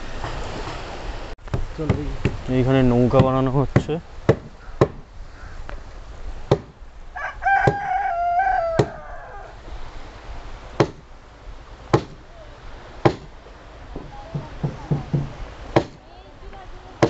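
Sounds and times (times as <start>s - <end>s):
sharp blows on wood: 3.1s - 5.8s, 6.4s - 6.8s, 7.6s - 7.9s, 8.7s - 9.0s, 10.8s - 11.1s, 11.9s - 12.3s, 13.0s - 16.0s
rooster crowing: 7.1s - 9.7s.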